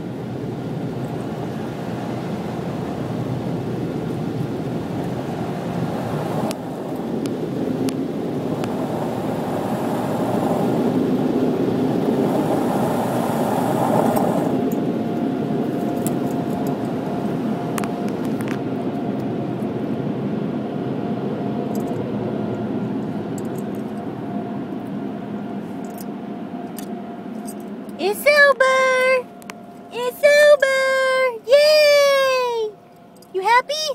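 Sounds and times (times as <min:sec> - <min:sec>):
car wash rushing noise: 0:00.0 - 0:17.7
machinery whine: 0:00.0 - 0:33.8.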